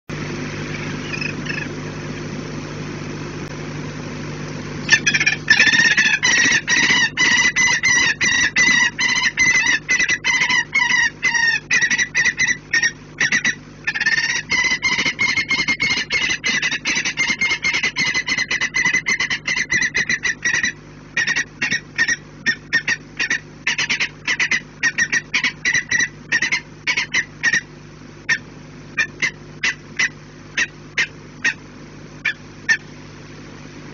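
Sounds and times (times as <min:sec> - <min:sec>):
falcon harsh calls: 0:00.7 - 0:01.8, 0:04.9 - 0:27.7, 0:29.0 - 0:31.6.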